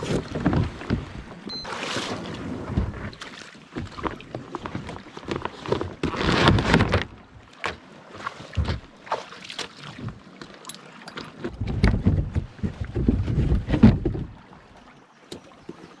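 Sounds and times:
dry bag rustling and knocking: 3.8 - 7.1
wind on microphone: 11.5 - 14.4.

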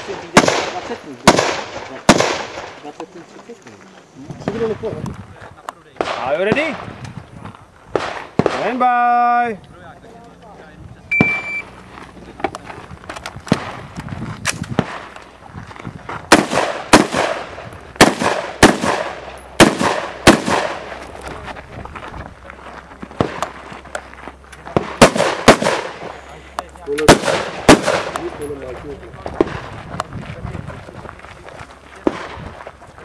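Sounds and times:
rifle shots with echo: 0.0 - 2.9, 6.0 - 6.9, 7.9 - 8.9, 16.3 - 21.0, 24.7 - 26.2, 27.0 - 28.5.

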